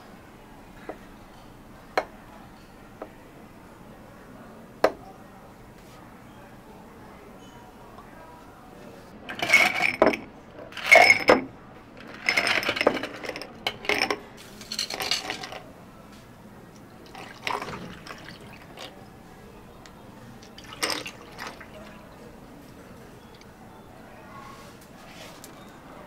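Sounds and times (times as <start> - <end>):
cups and glassware knocking: 9.4 - 10.3
liquid pouring: 17.0 - 19.0, 20.4 - 22.2.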